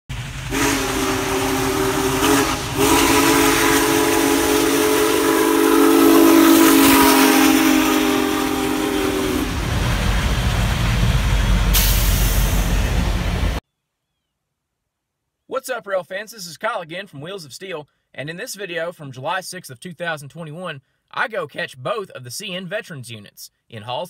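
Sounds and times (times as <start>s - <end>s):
passing train rumble: 0.1s - 13.6s
steam engine hissing: 0.1s - 13.6s
steam locomotive whistle chord: 0.4s - 9.7s.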